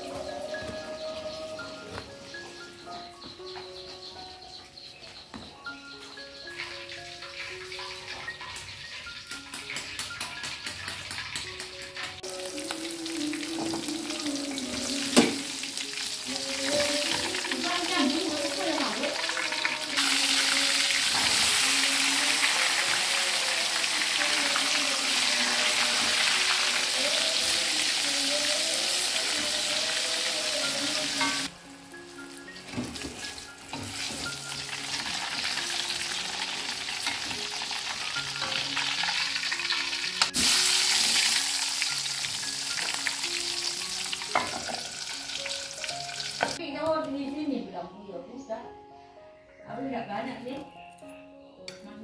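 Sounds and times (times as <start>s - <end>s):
vegetables sizzling in oil: 6.6s - 46.6s.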